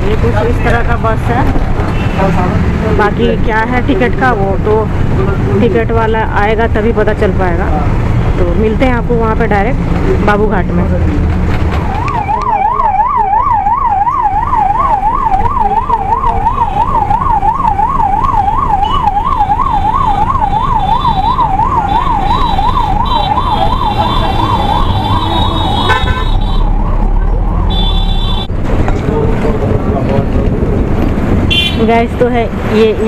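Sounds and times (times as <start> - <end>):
bus engine rumble: 0.0 - 12.9, 20.2 - 33.0
road noise: 0.0 - 33.0
ambulance siren warbling: 11.7 - 28.5.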